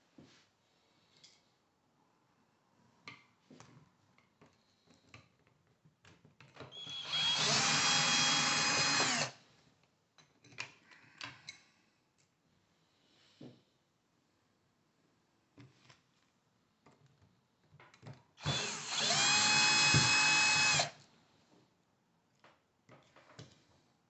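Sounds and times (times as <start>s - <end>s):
cordless drill whine: 6.7s - 9.4s, 18.4s - 21.0s.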